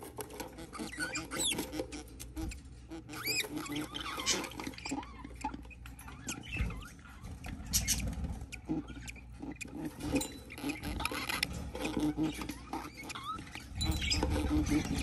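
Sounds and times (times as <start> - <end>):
budgerigar chirps: 0.6 - 15.0.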